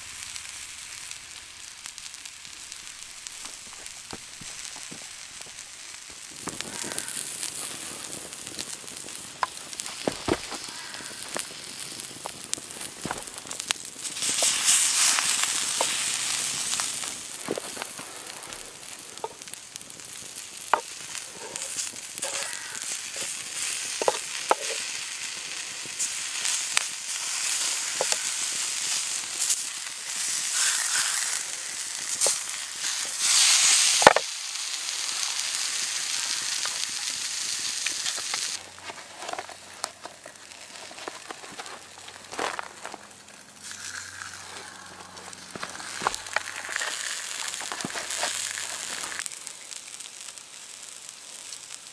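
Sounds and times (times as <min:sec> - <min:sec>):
sharp crackles and clicks: 0:00.0 - 0:51.9
vegetables sizzling on hot stone: 0:00.0 - 0:51.9
wooden spatula scraping: 0:21.2 - 0:22.6, 0:24.0 - 0:24.8, 0:38.1 - 0:43.0, 0:43.6 - 0:49.2.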